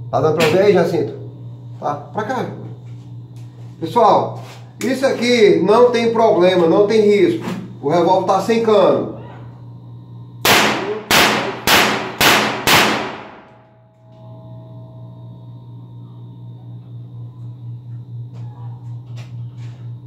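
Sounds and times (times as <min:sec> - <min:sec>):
revolver primer pops: 0:10.4 - 0:13.5.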